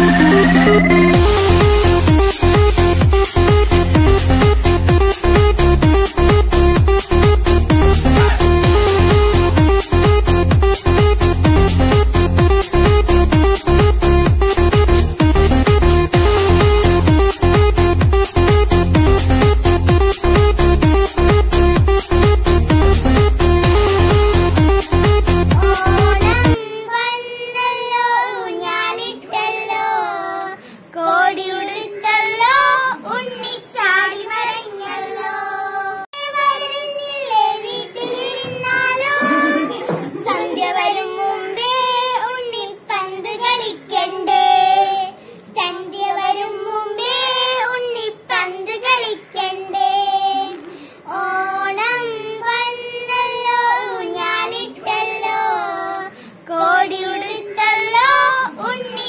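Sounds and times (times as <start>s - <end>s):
child singing: 23.7s - 59.0s.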